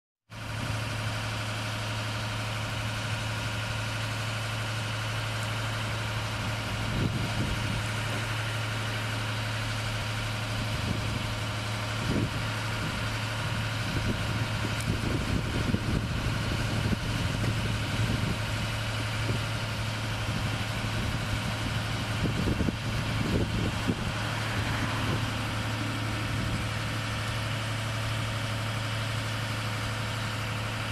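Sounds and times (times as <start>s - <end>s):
lift engine idling: 0.3s - 30.9s.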